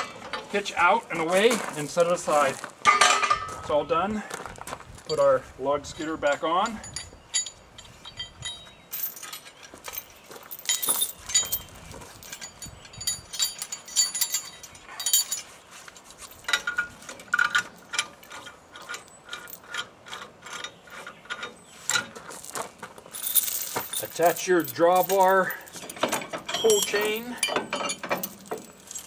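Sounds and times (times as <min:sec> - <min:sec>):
chain and tongs clinking: 0:05.9 - 0:22.4, 0:23.0 - 0:29.0.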